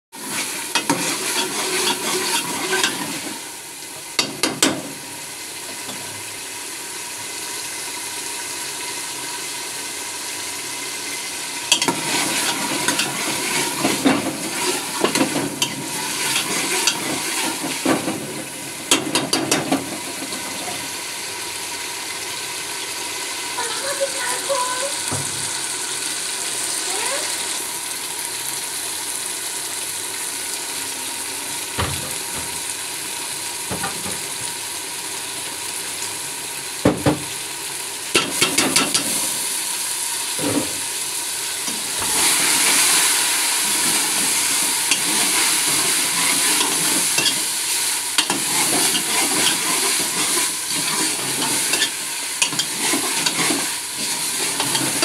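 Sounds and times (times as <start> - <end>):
vegetables sizzling in pot: 0.1 - 55.0
ladle scraping metal pot: 0.2 - 3.4, 11.7 - 18.2, 44.9 - 47.5, 48.2 - 55.0.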